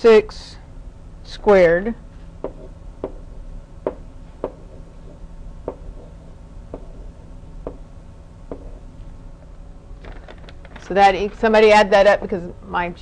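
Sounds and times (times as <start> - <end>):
low room hum: 0.0 - 13.0
stylus tapping on tablet: 2.4 - 4.8, 5.6 - 6.1, 6.7 - 7.9, 8.5 - 8.7.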